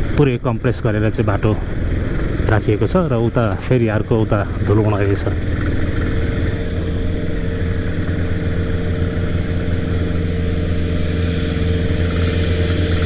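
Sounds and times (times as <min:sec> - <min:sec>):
vehicle engine cruising: 0:00.0 - 0:13.0.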